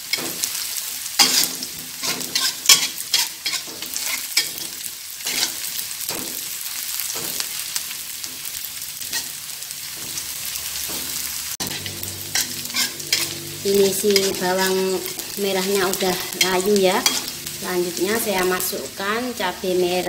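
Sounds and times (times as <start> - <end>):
shallots sizzling in oil: 0.0 - 20.0
metal spatula scraping pan: 1.2 - 5.7, 9.1 - 18.8.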